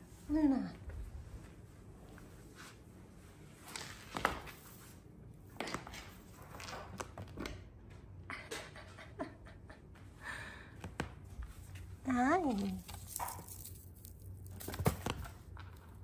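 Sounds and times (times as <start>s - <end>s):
soft rustles: 0.0s - 5.2s
kitten paws tapping on floor: 12.5s - 16.0s.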